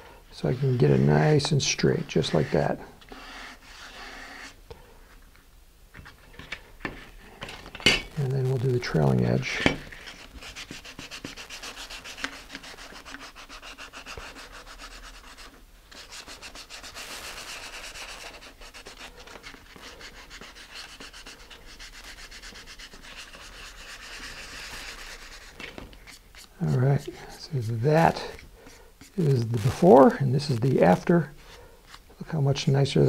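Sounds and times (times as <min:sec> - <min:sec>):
sandpaper rubbing back and forth: 0:01.8 - 0:04.6, 0:08.4 - 0:31.0.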